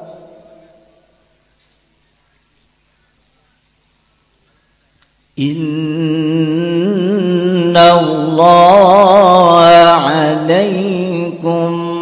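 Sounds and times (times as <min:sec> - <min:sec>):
voice echo: 0:00.0 - 0:01.6, 0:05.4 - 0:12.0
faint room hum: 0:00.0 - 0:12.0.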